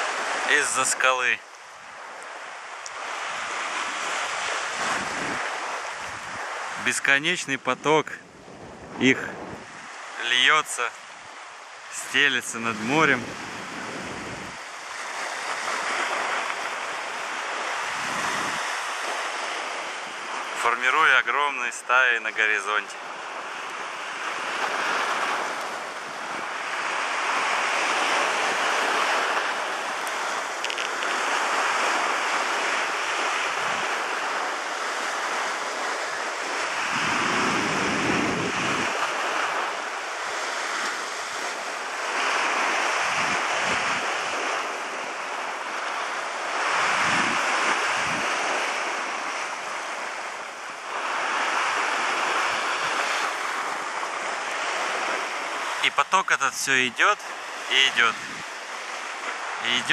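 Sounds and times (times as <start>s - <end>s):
waves breaking: 0.0s - 59.9s
wind buffeting microphone: 3.0s - 6.8s, 8.2s - 10.2s, 13.1s - 16.7s, 17.3s - 20.4s, 24.2s - 39.7s, 40.5s - 45.0s, 46.5s - 49.4s, 58.1s - 58.8s.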